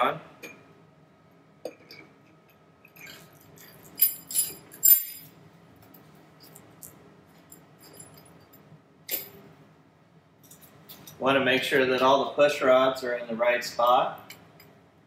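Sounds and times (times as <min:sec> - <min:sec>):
metal clinking and jingling: 0:02.9 - 0:05.3, 0:06.4 - 0:09.4.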